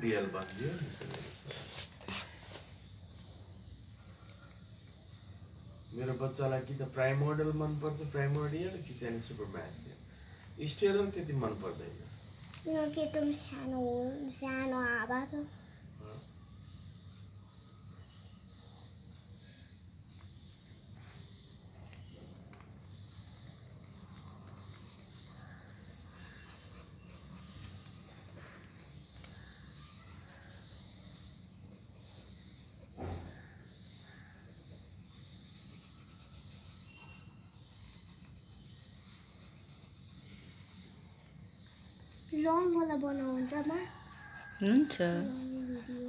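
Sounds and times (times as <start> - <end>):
pencil scratching on paper: 22.5 - 46.0.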